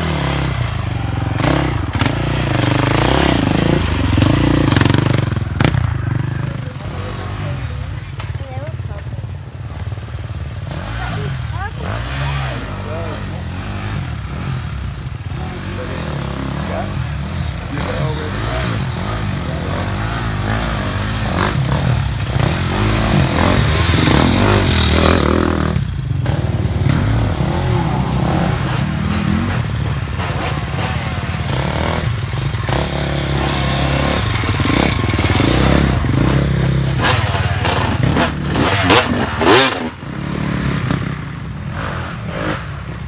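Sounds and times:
dirt bike engines revving: 0.0s - 43.0s.

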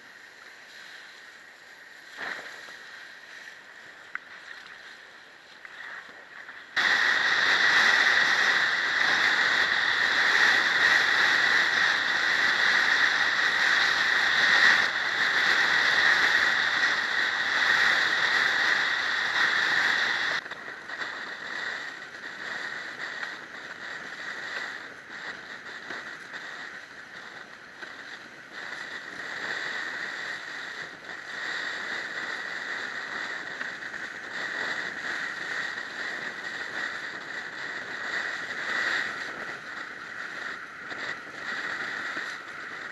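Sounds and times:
wind noise on microphone: 0.0s - 42.9s.

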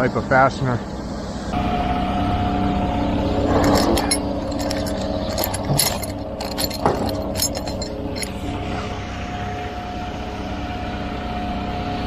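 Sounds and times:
truck engine running: 1.6s - 12.0s
metal bolts clinking: 3.5s - 8.4s.

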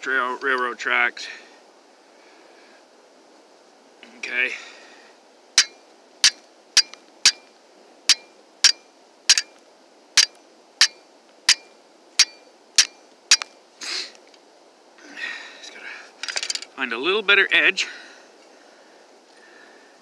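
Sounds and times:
steel striking flint: 5.6s - 9.6s, 10.2s - 13.6s.

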